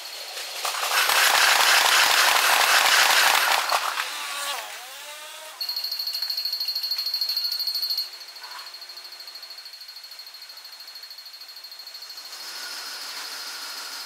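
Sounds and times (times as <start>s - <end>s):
level crossing bell ringing: 5.6s - 11.8s.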